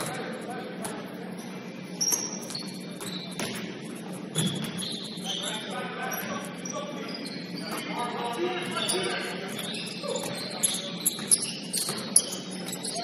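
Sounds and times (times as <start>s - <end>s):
murmur of voices: 0.0s - 13.0s
sneaker squeaks on court: 1.9s - 13.0s
ball bouncing: 2.1s - 3.7s.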